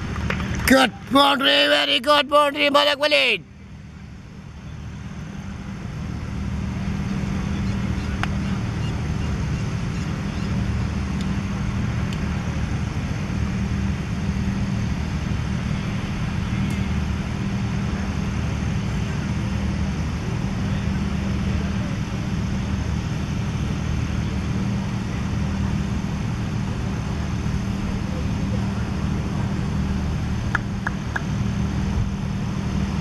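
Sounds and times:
low mechanical rumble with hum: 0:00.0 - 0:33.0.

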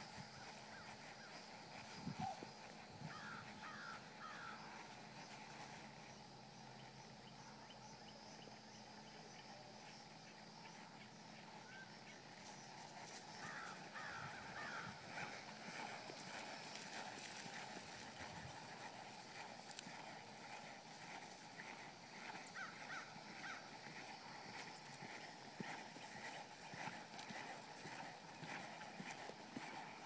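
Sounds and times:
crows cawing faintly: 0:03.0 - 0:04.8, 0:13.4 - 0:15.3, 0:22.6 - 0:23.7.

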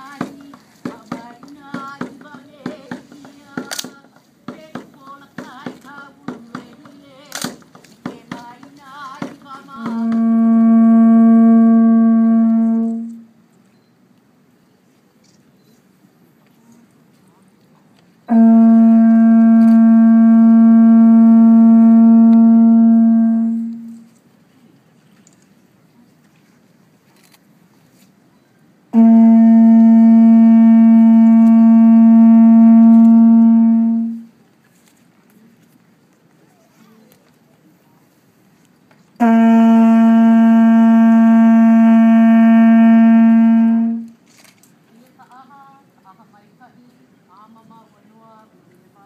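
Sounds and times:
conch shell trumpet long note: 0:09.8 - 0:13.3, 0:18.3 - 0:24.1, 0:28.9 - 0:34.3, 0:39.2 - 0:44.2.

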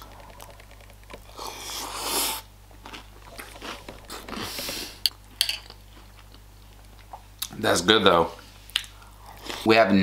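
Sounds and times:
chewing crunchy cereal: 0:00.0 - 0:07.2.

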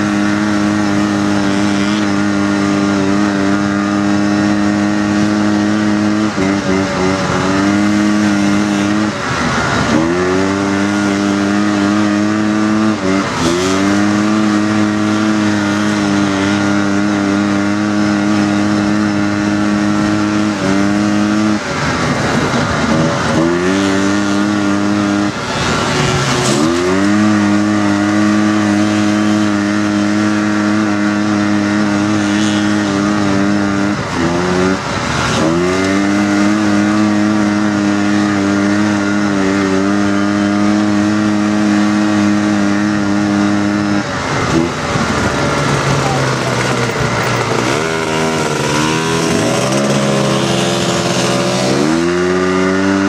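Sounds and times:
dune buggy engine revving: 0:00.0 - 0:53.0.

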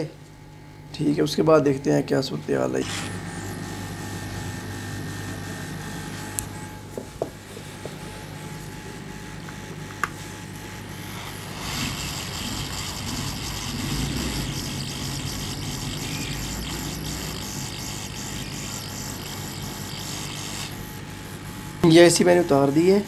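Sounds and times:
hot-air gun hissing: 0:11.0 - 0:20.9.

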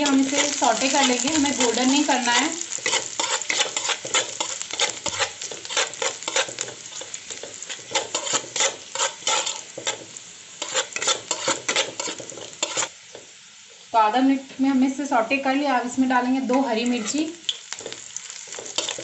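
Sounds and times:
steel spoon scraping pan: 0:00.0 - 0:13.0, 0:16.9 - 0:19.0
garlic sizzling in hot oil: 0:00.0 - 0:19.0.

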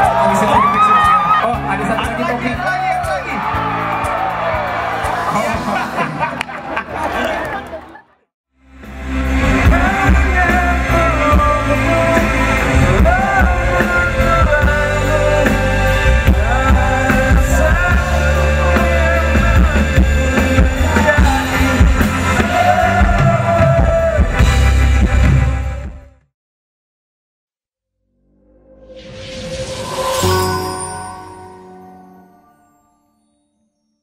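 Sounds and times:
rock song with singer: 0:08.9 - 0:26.0.

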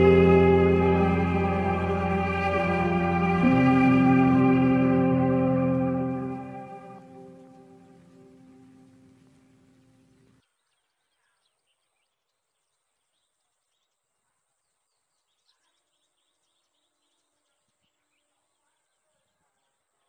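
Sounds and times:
thin steady high tone: 0:00.0 - 0:08.9
background music: 0:00.0 - 0:09.4
faint bird chirps: 0:07.0 - 0:20.0.

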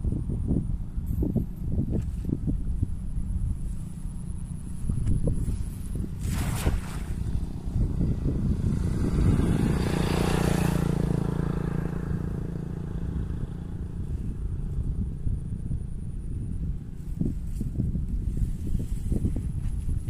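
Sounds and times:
small engine hum: 0:00.0 - 0:20.0
steady low rumble: 0:00.0 - 0:20.0
net splashing into water: 0:05.5 - 0:07.5.

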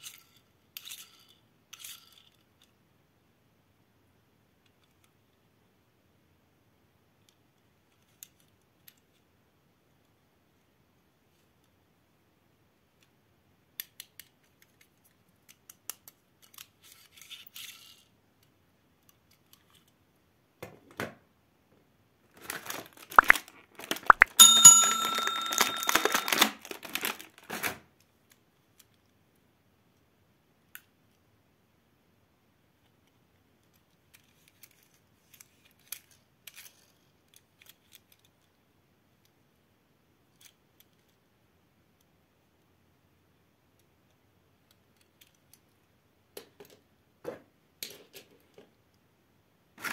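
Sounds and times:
small clicks of toy cars: 0:00.0 - 0:02.8, 0:04.6 - 0:05.4, 0:07.2 - 0:09.3, 0:12.9 - 0:20.0, 0:26.8 - 0:31.2, 0:32.8 - 0:38.6, 0:40.2 - 0:41.2, 0:43.7 - 0:47.0
plastic tray crackling: 0:22.3 - 0:24.3, 0:26.1 - 0:27.7
bell-like chime: 0:24.3 - 0:26.5.

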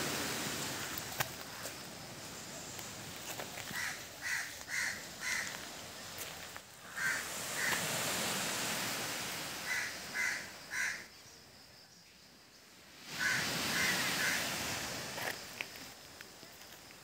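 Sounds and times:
steady background hiss: 0:00.0 - 0:17.0
bird giving harsh calls: 0:03.8 - 0:05.5, 0:06.9 - 0:07.8, 0:13.2 - 0:14.5.

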